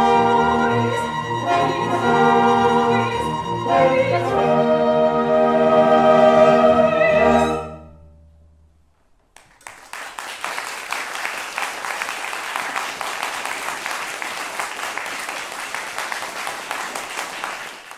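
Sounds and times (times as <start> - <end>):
audience applause: 9.4 - 17.9.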